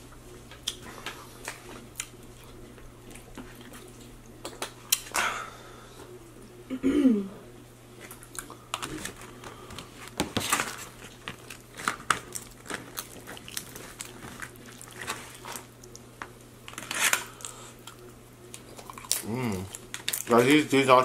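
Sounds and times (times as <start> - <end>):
tortilla chips crunching: 10.4 - 20.8.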